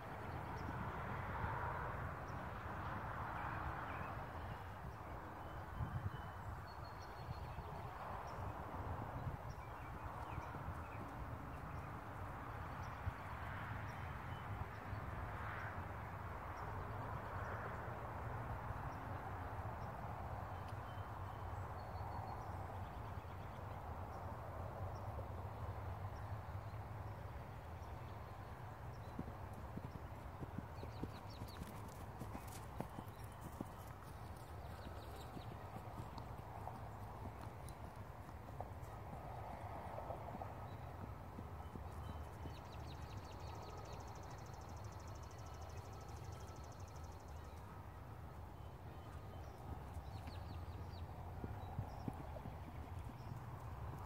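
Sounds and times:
horse hooves thudding on grass: 29.0s - 43.2s.

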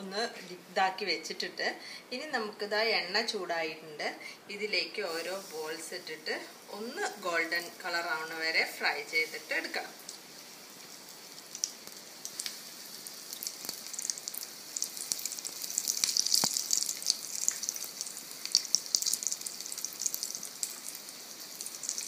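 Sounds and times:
food deep-frying in oil: 5.1s - 22.0s.

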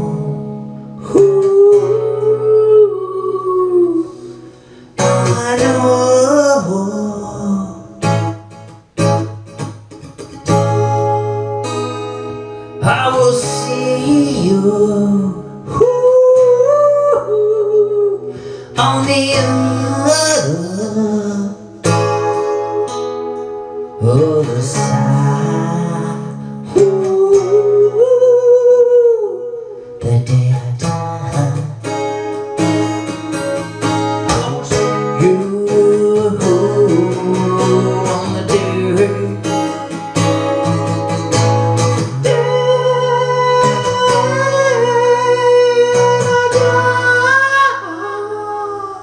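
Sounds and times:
man singing: 0.0s - 8.3s, 12.8s - 22.0s, 23.9s - 32.0s, 34.2s - 40.6s, 41.8s - 49.0s
strummed acoustic guitar: 0.0s - 49.0s.

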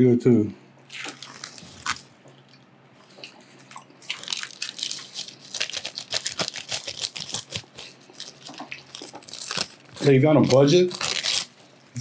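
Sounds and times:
dried seaweed crackling: 0.9s - 2.1s, 4.0s - 12.0s
chewing: 0.9s - 10.6s.

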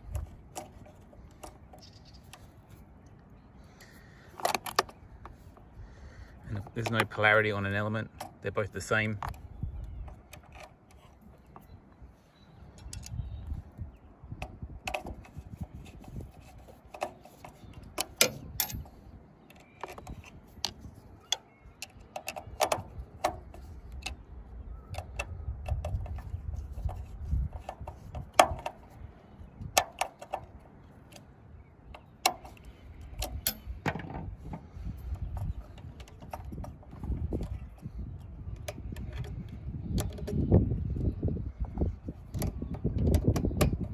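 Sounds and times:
screwdriver clicks and taps: 38.6s - 40.4s.

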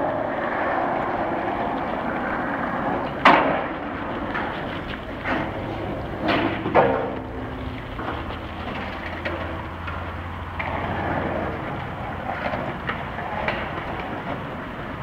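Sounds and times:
skate wheels rolling over pavement: 0.0s - 15.0s.

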